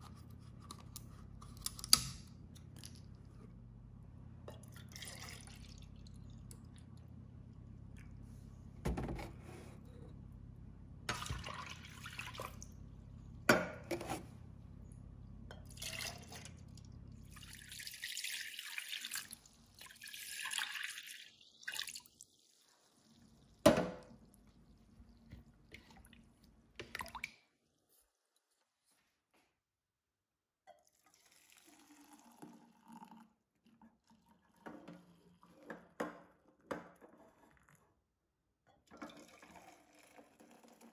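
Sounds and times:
liquid pouring into metal containers: 4.5 - 7.1, 11.1 - 12.9, 15.5 - 27.8, 30.7 - 36.0, 38.8 - 40.9.

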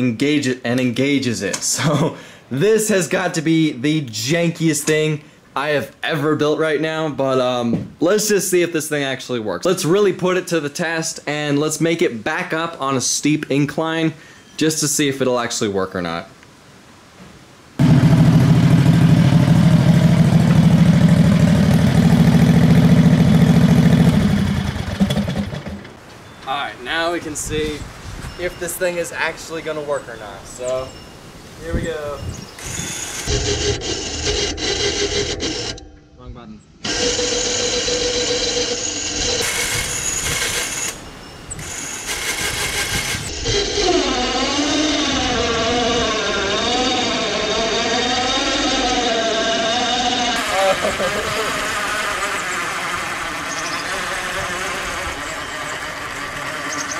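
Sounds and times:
go-kart engine running: 17.8 - 25.9, 36.8 - 41.0, 41.6 - 44.9, 49.4 - 56.9
electric winch motor whining: 32.6 - 35.9, 36.8 - 56.9.

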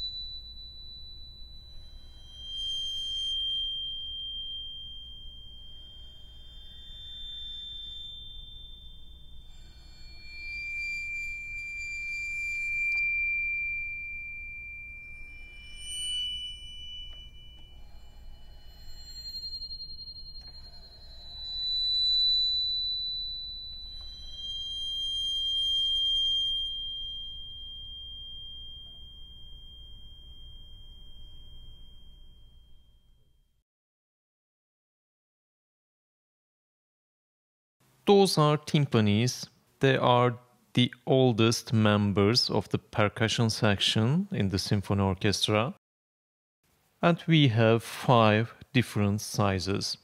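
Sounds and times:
bowed crotales ringing: 0.0 - 31.9.

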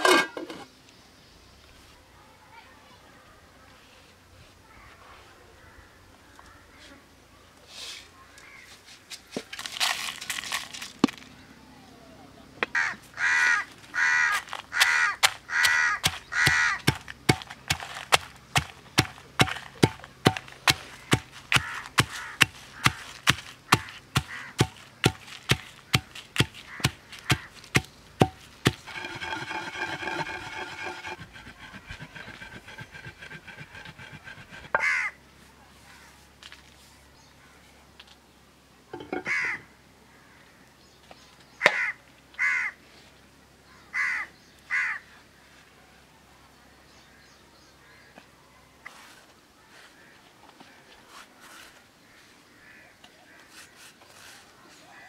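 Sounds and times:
crows cawing: 12.7 - 17.0, 20.9 - 24.8, 26.0 - 27.6, 34.7 - 35.2, 39.2 - 40.6, 41.6 - 42.8, 43.7 - 45.0, 52.0 - 53.6
pestle pounding in stone mortar: 14.3 - 34.9.

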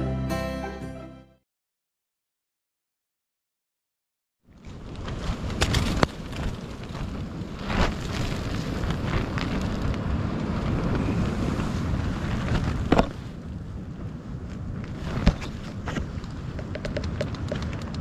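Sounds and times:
tent fabric flapping: 4.5 - 18.0
wind rumble on microphone: 4.5 - 18.0.

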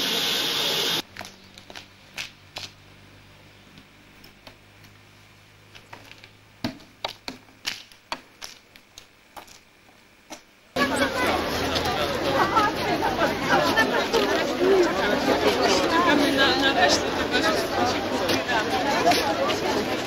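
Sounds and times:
loud even hiss: 0.0 - 1.0.

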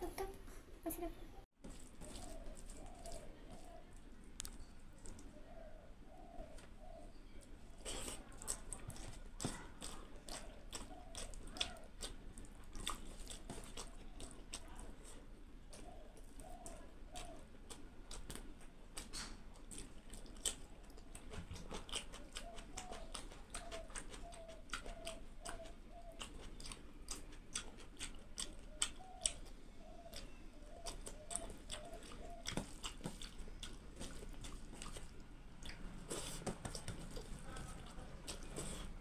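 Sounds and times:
close chewing: 1.6 - 39.0
fingers squishing rice: 1.6 - 39.0.

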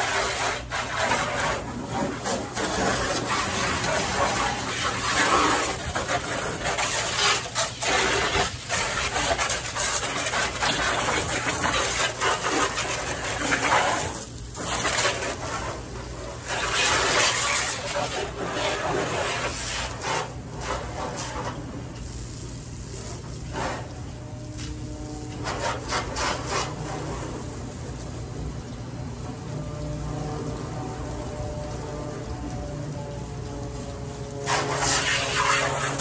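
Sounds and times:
hose nozzle spraying water: 0.0 - 36.0.

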